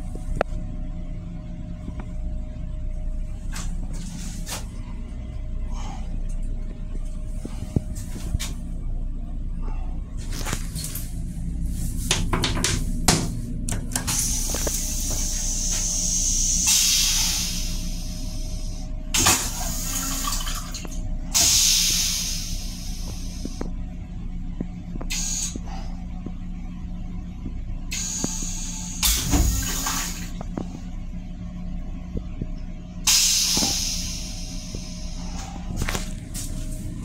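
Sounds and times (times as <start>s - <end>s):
steady low hum: 0.0s - 37.0s
toilet flush rinse spray hissing: 14.0s - 20.8s, 21.4s - 23.6s, 25.1s - 25.6s, 27.9s - 30.4s, 33.1s - 35.3s.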